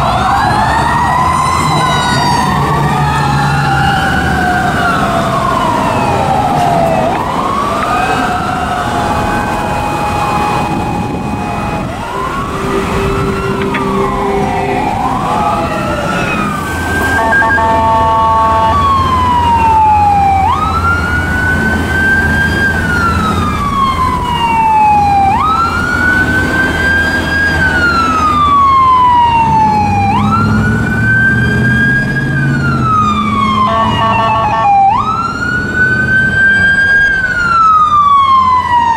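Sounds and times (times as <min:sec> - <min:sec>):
electronic wail siren: 0:00.0 - 0:38.9
vehicle engines rumbling: 0:00.0 - 0:38.9
wail sirens: 0:00.0 - 0:38.9
short horn blasts: 0:11.3 - 0:14.8, 0:17.0 - 0:18.8, 0:33.6 - 0:34.8.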